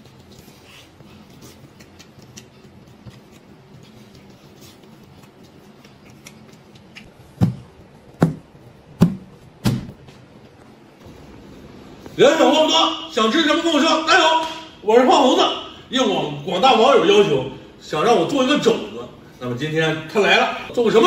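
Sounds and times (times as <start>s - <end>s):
chewing and lip-smacking: 1.1s - 7.1s
heavy thuds: 7.3s - 10.2s.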